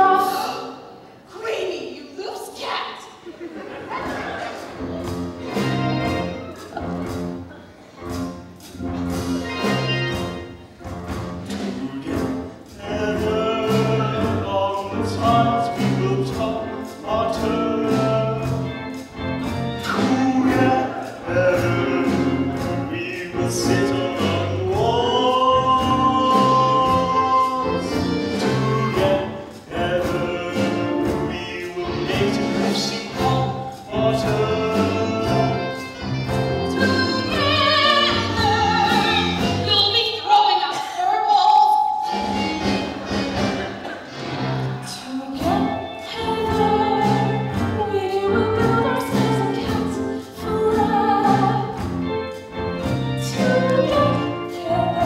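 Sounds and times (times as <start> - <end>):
musical theatre song: 0.0 - 55.0.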